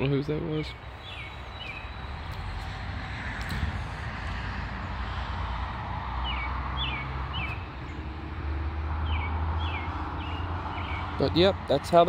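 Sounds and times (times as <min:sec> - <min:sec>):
bird chirping: 0:00.0 - 0:02.8, 0:06.2 - 0:08.4, 0:09.0 - 0:11.4.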